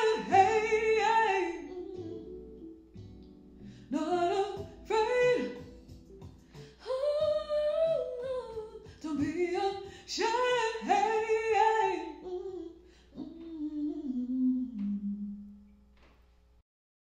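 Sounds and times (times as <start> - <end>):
woman singing slow melody: 0.0 - 3.1, 3.8 - 5.9, 6.7 - 15.7.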